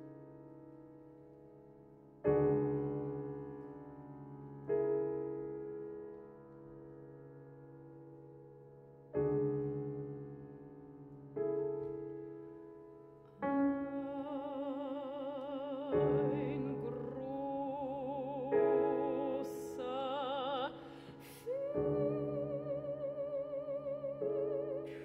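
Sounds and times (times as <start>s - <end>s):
piano chords: 0.0s - 25.0s
soprano singing with vibrato: 13.5s - 25.0s.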